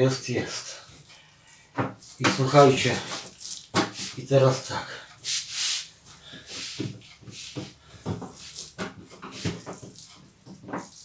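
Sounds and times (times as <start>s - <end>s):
dough slapping on countertop: 3.1s - 4.2s.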